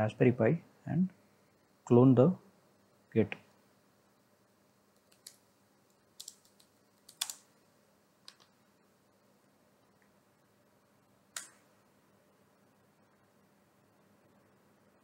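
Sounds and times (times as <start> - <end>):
computer keyboard keystrokes: 5.0 - 5.4, 6.2 - 7.4, 8.2 - 8.5, 11.4 - 11.6.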